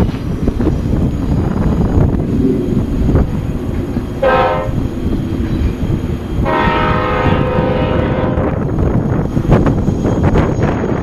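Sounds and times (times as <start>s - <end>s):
low rumble: 0.1s - 9.7s
locomotive air horn: 4.2s - 4.8s, 6.4s - 8.6s.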